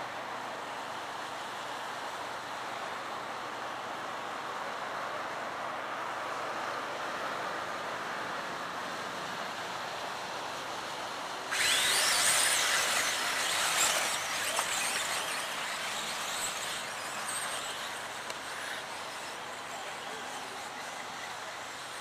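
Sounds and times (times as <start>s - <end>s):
rc car motor whine: 11.5s - 22.0s
steady hiss: 11.6s - 22.0s.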